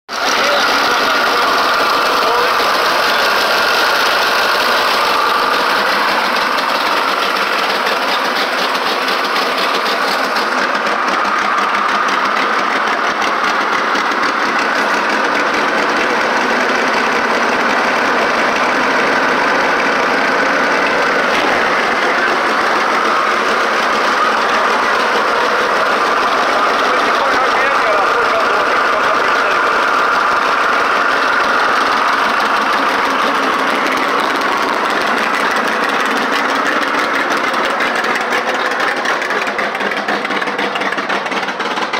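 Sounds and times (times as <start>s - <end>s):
car engine running: 0.1s - 41.9s.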